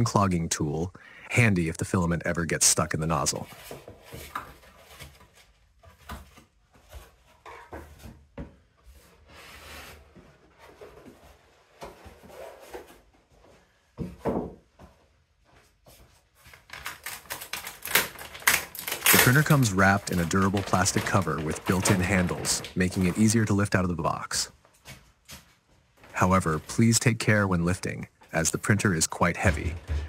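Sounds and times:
cardboard packaging rubbing and scraping: 0:08.9 - 0:13.1, 0:17.6 - 0:23.5
plastic wrap rustling: 0:16.4 - 0:23.5.

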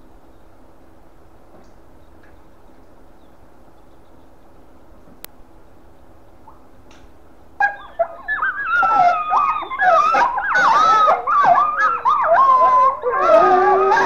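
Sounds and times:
wolf yips and whines: 0:07.6 - 0:14.0
wolves howling in chorus: 0:07.6 - 0:14.0.

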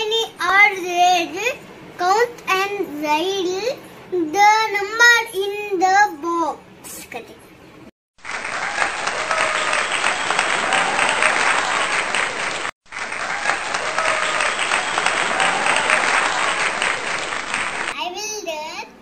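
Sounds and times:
crowd applause: 0:08.2 - 0:18.0.

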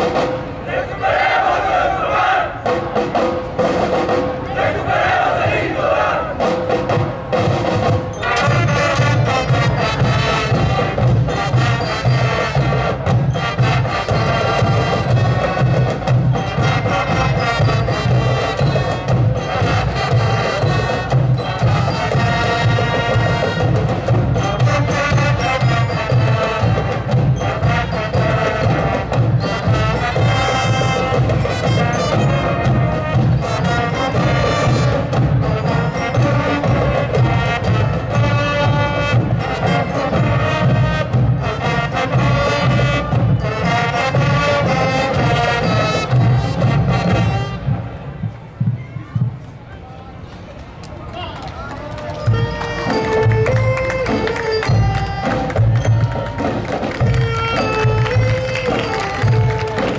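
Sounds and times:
wind instruments melody: 0:00.0 - 0:59.9
steady drum beat: 0:02.6 - 0:49.5, 0:52.4 - 0:59.9
sharp percussion strikes: 0:06.4 - 0:47.8, 0:52.1 - 0:59.9.

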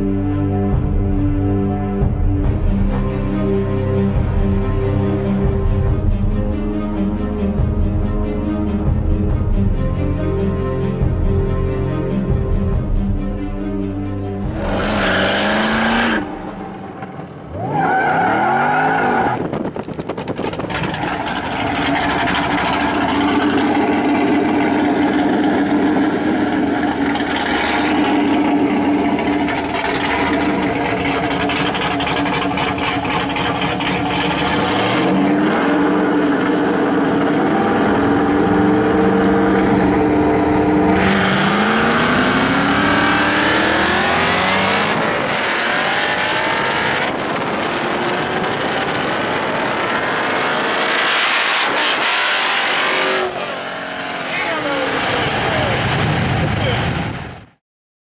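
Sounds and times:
car engines revving: 0:14.4 - 0:57.4.

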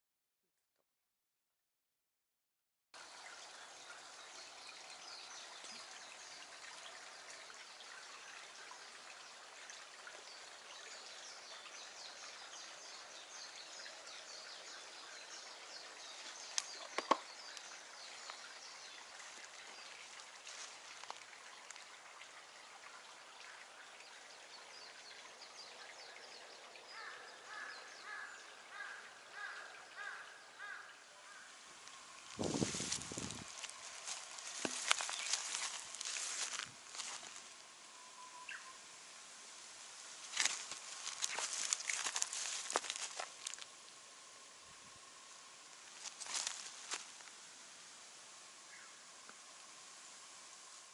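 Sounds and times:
soft steady hiss: 0:03.0 - 0:50.9
small high chirps and ticks: 0:03.6 - 0:27.0, 0:31.7 - 0:39.1, 0:40.0 - 0:47.6.

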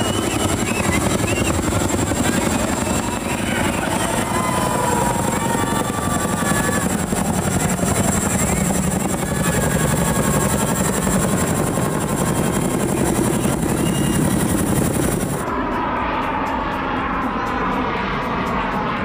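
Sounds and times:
helicopter rotors chopping: 0:00.0 - 0:17.4
jet aircraft engine: 0:00.0 - 0:19.0.

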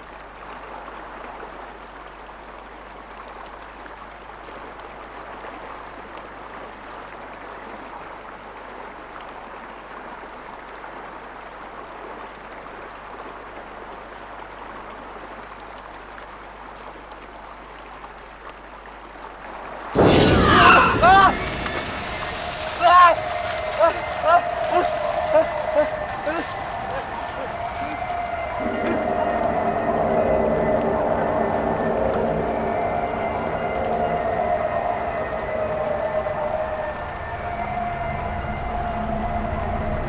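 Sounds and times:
river rushing over rocks: 0:19.4 - 0:29.5.

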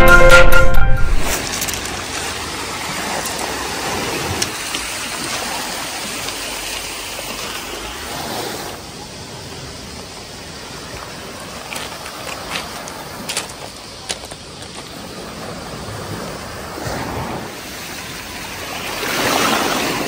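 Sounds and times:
footsteps on pebbles: 0:01.2 - 0:03.4, 0:11.2 - 0:15.0
waves on a pebble beach: 0:01.2 - 0:20.0.

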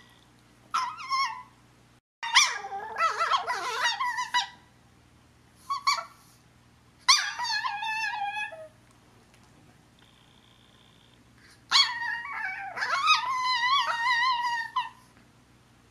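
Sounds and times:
small dog whining: 0:00.7 - 0:01.6, 0:02.2 - 0:04.6, 0:05.7 - 0:06.2, 0:07.1 - 0:08.8, 0:11.7 - 0:15.1.

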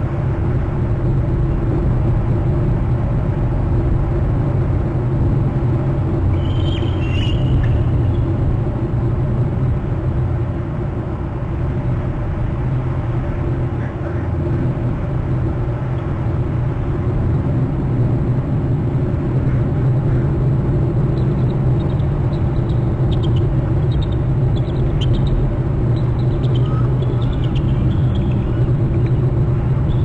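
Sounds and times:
steady low rumble: 0:00.0 - 0:30.0
eagles screeching: 0:06.4 - 0:07.7, 0:26.2 - 0:28.7.

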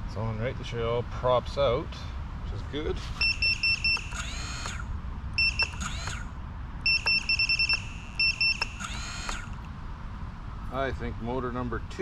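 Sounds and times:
rapid high electronic beeps: 0:03.2 - 0:04.8, 0:05.4 - 0:09.5
drone motors whining: 0:03.2 - 0:09.7.

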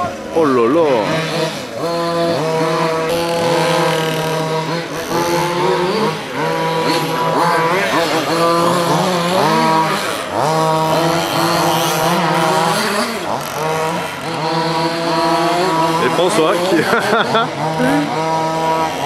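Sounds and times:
small two-stroke engines racing: 0:00.0 - 0:19.0.

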